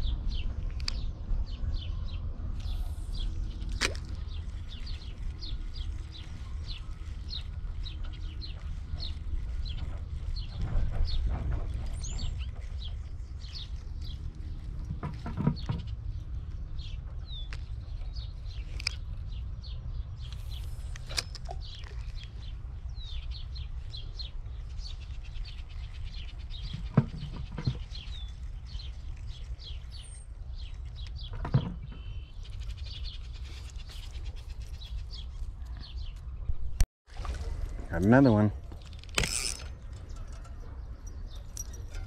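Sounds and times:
steady low rumble: 0.0 - 26.7
small birds chirping: 0.0 - 36.8, 39.6 - 42.0.

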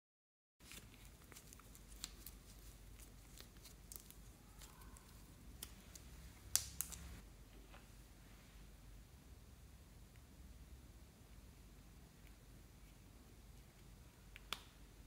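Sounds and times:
slime stretching with sticky crackles: 0.6 - 7.2.

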